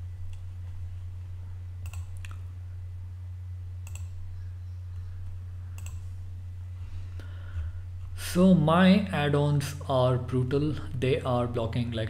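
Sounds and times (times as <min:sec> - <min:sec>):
low electrical hum: 0:00.0 - 0:12.0
computer mouse clicking: 0:01.8 - 0:02.4, 0:03.8 - 0:04.2, 0:05.0 - 0:06.1.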